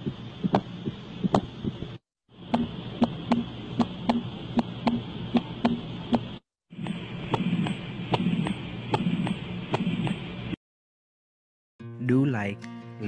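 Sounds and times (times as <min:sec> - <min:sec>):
heartbeat through stethoscope: 0:00.0 - 0:10.3
hum between heartbeats: 0:00.0 - 0:10.6.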